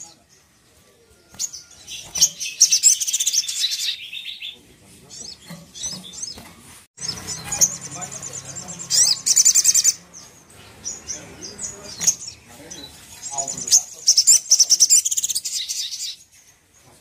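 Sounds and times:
bird singing buzzy trills: 0.0 - 16.9.

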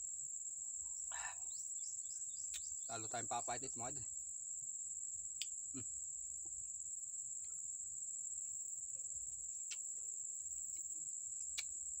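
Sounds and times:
insect chorus trilling: 0.0 - 12.0.

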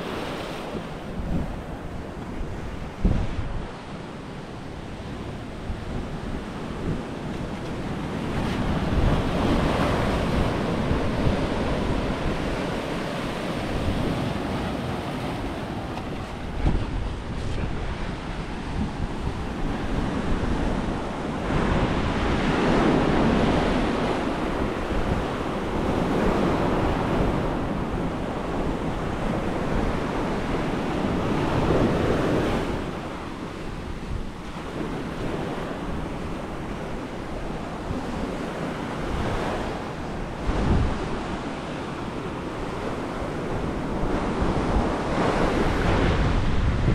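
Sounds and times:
wind rumbling on microphone: 0.0 - 46.9
sea waves breaking on rocks: 6.4 - 20.8.

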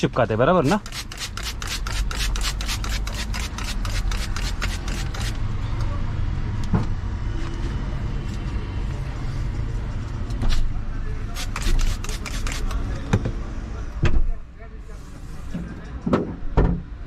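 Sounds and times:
spray bottle squirting: 0.7 - 5.4, 11.3 - 12.8.

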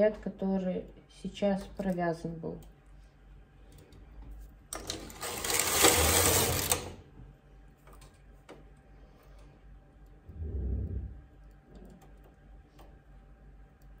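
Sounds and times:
knitting machine carriage whir: 4.7 - 7.1.

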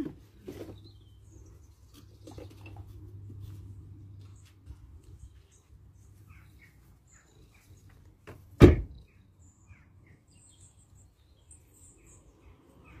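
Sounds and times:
sharp thump: 8.6 - 9.0.

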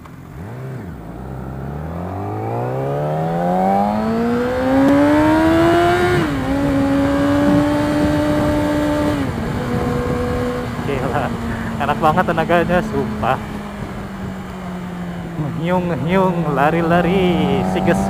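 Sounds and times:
motorcycle engine accelerating: 0.0 - 18.0.

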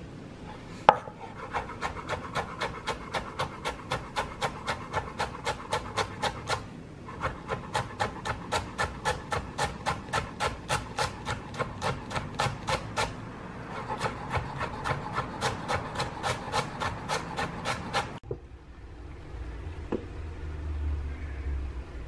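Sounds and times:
knife chopping on cutting board: 0.9 - 13.2, 13.8 - 18.2.

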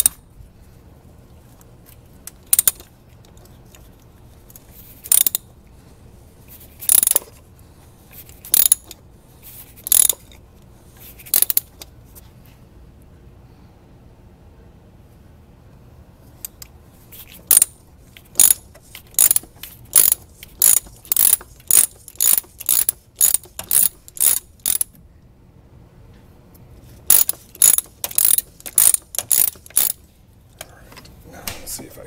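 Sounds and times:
socket ratchet clicking: 0.0 - 0.2, 2.3 - 2.9, 5.0 - 5.5, 6.8 - 7.3, 8.3 - 9.0, 9.8 - 10.4, 11.2 - 11.9, 17.3 - 25.0, 27.1 - 30.0.

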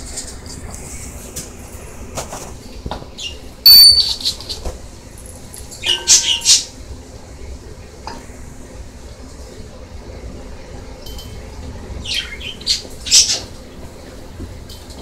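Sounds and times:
bird squawks and chirps: 3.7 - 4.4
bird whistled call: 3.7 - 4.4.

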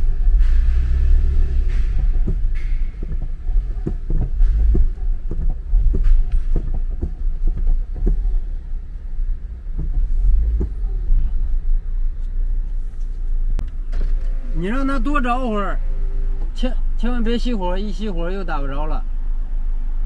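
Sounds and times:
car driving rumble inside cabin: 0.0 - 20.0
light knocks and clicks: 1.6 - 8.4.

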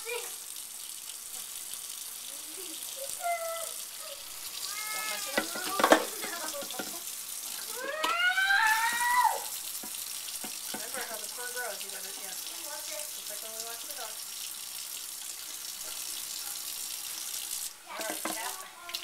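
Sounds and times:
faucet running into sink: 0.0 - 19.0
cat meowing and yowling: 3.2 - 5.4, 7.7 - 9.5.

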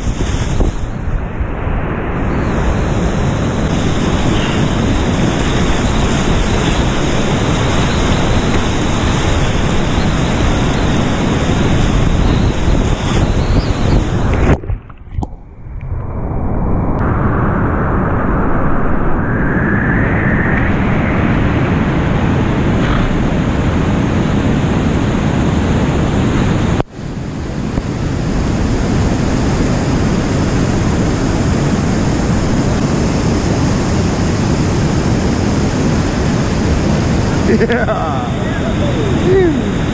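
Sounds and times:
whitewater rapids rushing: 37.2 - 39.9.

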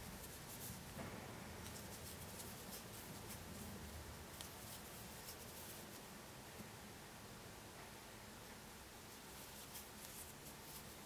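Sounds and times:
yarn scratching through stitches: 0.0 - 0.9, 1.6 - 3.7, 4.3 - 6.0, 9.3 - 11.0
low room hum: 0.0 - 11.0.

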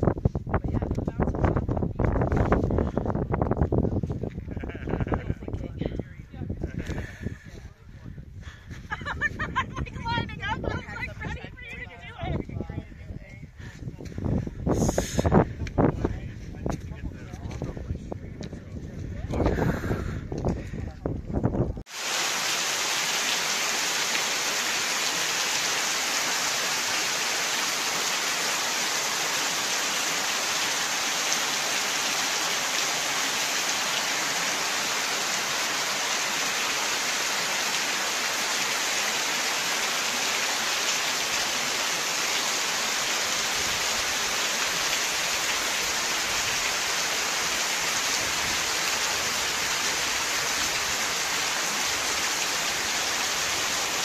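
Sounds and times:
running and dripping water: 21.4 - 54.0.

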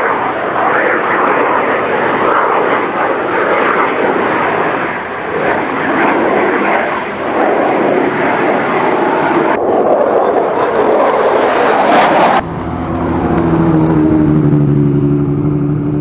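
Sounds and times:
drone motors buzzing: 12.4 - 16.0.

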